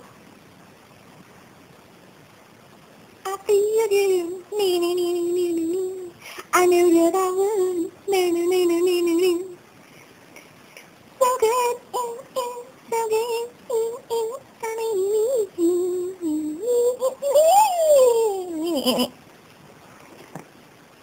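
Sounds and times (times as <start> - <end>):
high voice singing a simple tune: 3.2 - 9.6, 11.2 - 19.2.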